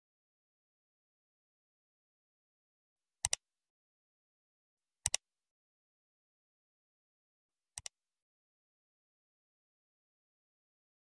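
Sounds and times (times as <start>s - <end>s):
computer mouse double click: 5.0s - 5.2s, 7.8s - 8.0s.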